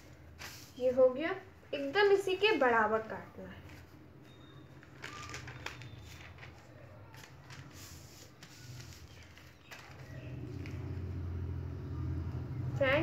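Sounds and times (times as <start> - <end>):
newspaper rustling and crinkling: 4.6 - 11.3.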